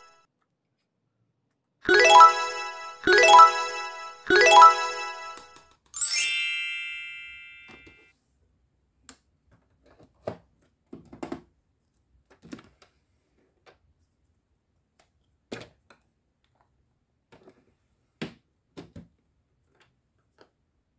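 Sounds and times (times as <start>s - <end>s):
bright bell-like chime: 0.0s - 0.2s, 1.9s - 8.1s.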